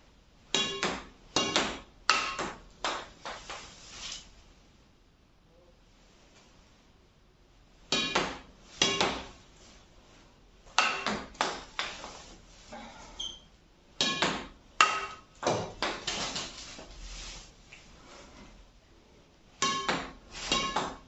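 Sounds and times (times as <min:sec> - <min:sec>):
racket hitting shuttlecock: 0:00.5 - 0:03.6, 0:07.9 - 0:09.4, 0:10.7 - 0:12.1, 0:14.0 - 0:16.5, 0:19.6 - 0:21.0.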